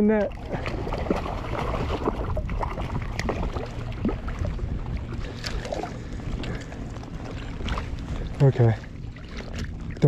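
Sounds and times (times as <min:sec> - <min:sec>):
steady low rumble: 0:00.0 - 0:10.0
water splashing and dripping: 0:00.0 - 0:10.0.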